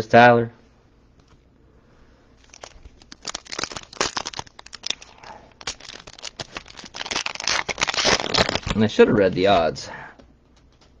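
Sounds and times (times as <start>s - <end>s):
foil wrapper crinkling and tearing: 2.4s - 9.6s.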